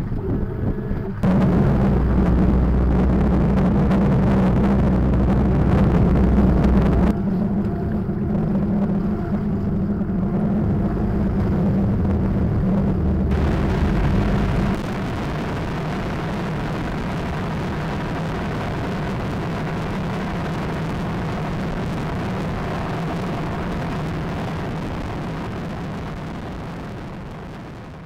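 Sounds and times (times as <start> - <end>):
outboard engines running: 0.0 - 27.6
wind and spray rushing: 10.8 - 20.4.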